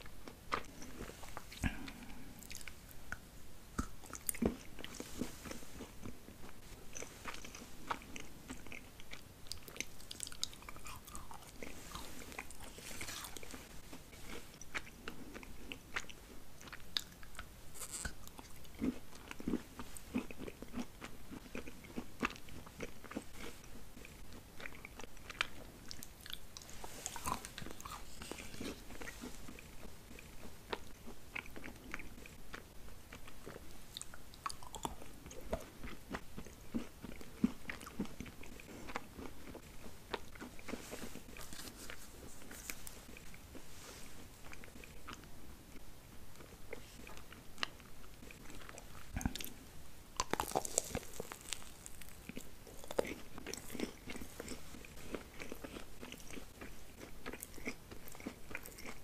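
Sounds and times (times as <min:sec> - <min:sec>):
chocolate candies crunching: 0:24.1 - 0:32.6, 0:50.2 - 0:59.0.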